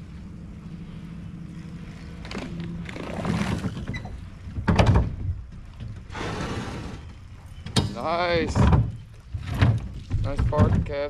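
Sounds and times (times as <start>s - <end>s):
electric trolling motor humming: 0.0s - 4.6s
knocks on boat: 3.5s - 6.1s, 7.7s - 11.0s.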